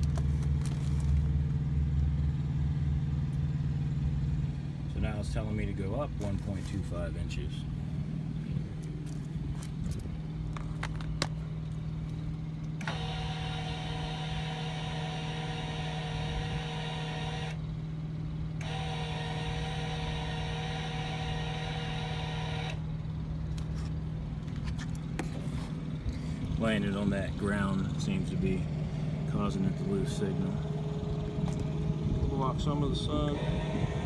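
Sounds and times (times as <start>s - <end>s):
steady low hum: 0.0s - 34.0s
electric jack motor whining: 12.8s - 17.7s, 18.5s - 23.0s, 28.8s - 34.0s.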